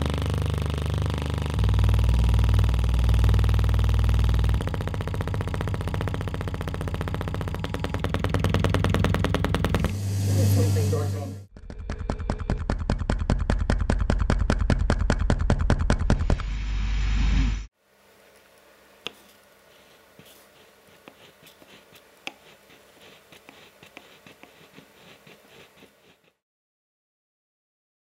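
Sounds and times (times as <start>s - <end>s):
loud low hum: 0.0s - 11.8s.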